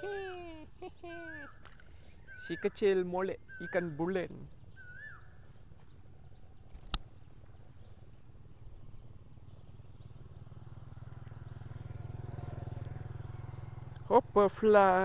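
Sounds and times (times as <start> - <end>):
low motor hum: 4.6 - 14.6.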